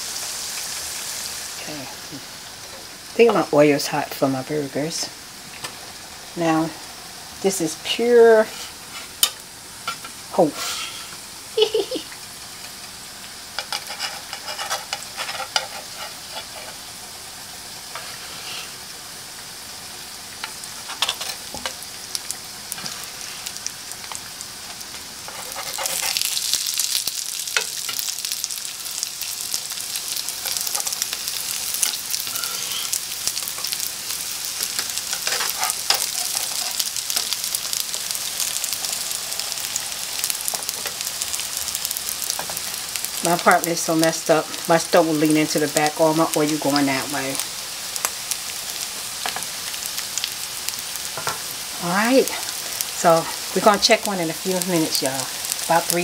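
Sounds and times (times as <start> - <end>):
patties sizzling in oil: 0.0 - 56.0
metal spatula scraping pan: 8.4 - 11.2, 13.6 - 16.9, 17.9 - 18.8, 20.4 - 21.8, 25.2 - 26.4, 30.4 - 33.8, 34.6 - 37.4.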